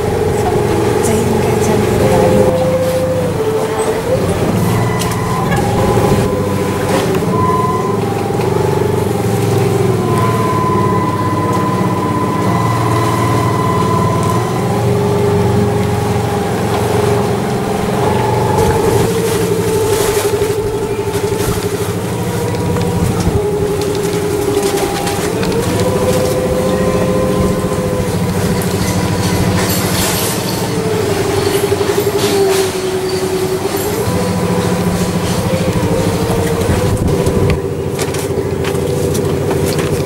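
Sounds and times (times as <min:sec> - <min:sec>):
boat engine rumbling: 0:00.0 - 0:40.0.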